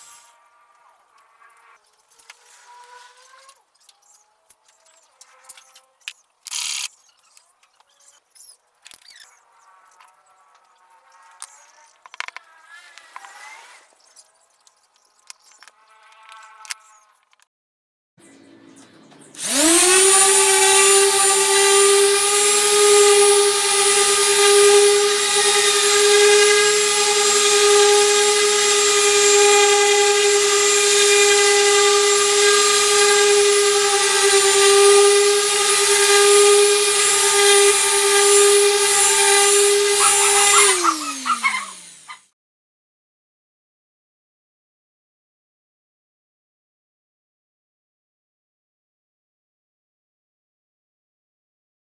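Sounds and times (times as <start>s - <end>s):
power tool motor whine: 19.4s - 42.3s.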